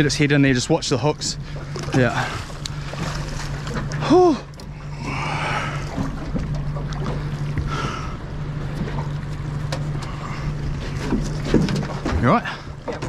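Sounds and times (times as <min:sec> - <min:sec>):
boat engine idling: 0:00.0 - 0:13.0
water around hull: 0:00.0 - 0:13.0
water splash: 0:01.6 - 0:04.4.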